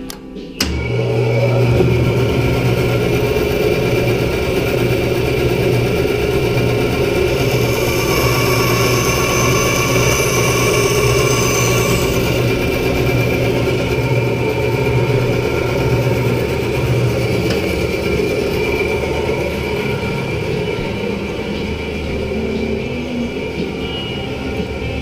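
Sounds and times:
bandsaw humming: 0:00.0 - 0:23.7
saw blade cutting wood: 0:06.2 - 0:14.2.

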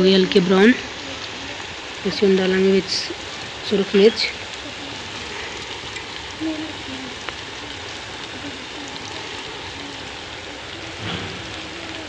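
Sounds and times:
onions sizzling in hot fat: 0:00.0 - 0:12.0.

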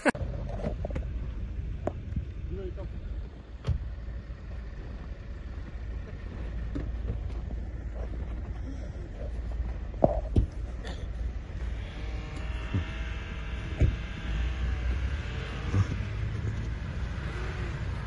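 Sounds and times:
car engine revving in snow: 0:00.0 - 0:18.0
low steady rumble: 0:00.0 - 0:18.0.

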